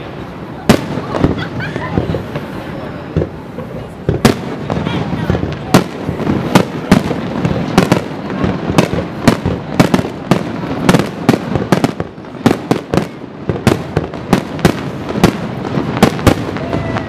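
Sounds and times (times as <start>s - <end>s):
background noise: 0.0s - 17.0s
fireworks bursting: 0.0s - 17.0s.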